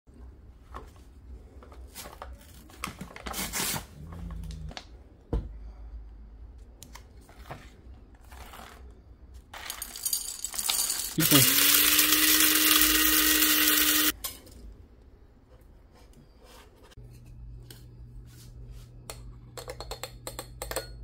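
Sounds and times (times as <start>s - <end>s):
coffee beans pouring into metal cup: 9.6s - 14.2s.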